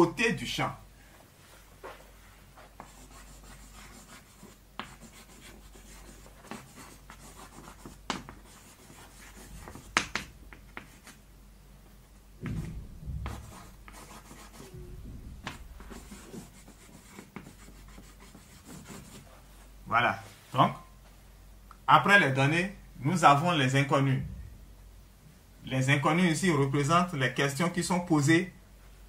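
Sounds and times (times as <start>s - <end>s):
chalk scratching on blackboard: 2.6s - 11.2s, 12.5s - 19.6s
chalk tapping on board: 2.8s - 11.2s, 12.4s - 14.8s, 15.4s - 19.2s
low dull rumble: 12.4s - 16.6s, 24.1s - 25.1s.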